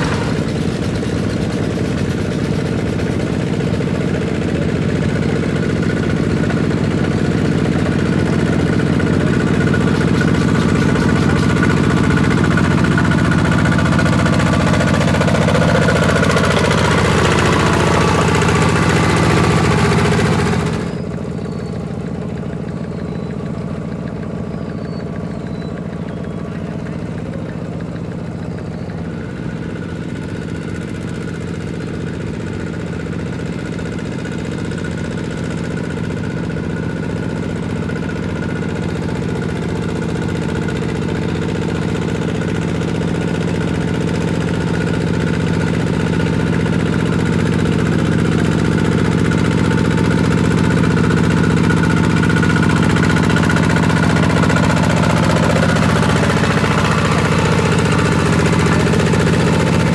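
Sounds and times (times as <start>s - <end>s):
diesel tractor engine running: 0.0s - 59.9s.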